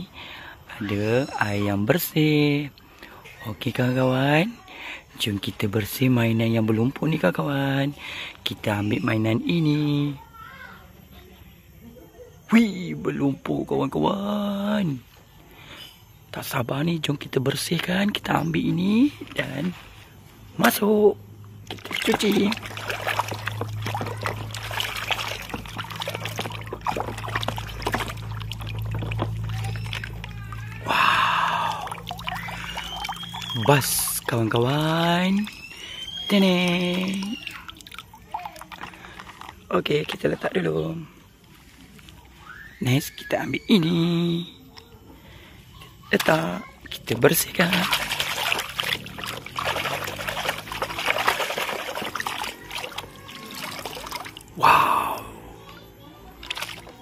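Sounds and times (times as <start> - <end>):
steady low hum: 0.0 - 42.4, 44.0 - 57.0
water sloshing in plastic basin: 16.4 - 40.7, 46.1 - 57.0.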